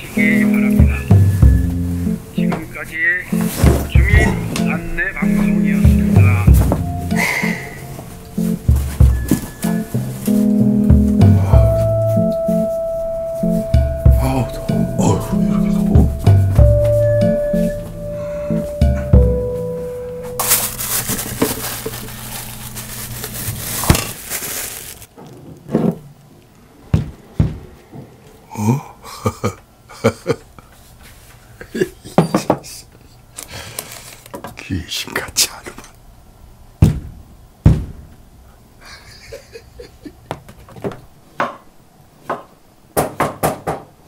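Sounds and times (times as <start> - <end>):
heavy thump: 3.5 - 4.7, 26.9 - 28.1, 36.8 - 38.1
rustling and crackling handling: 20.3 - 26.6, 33.4 - 34.5.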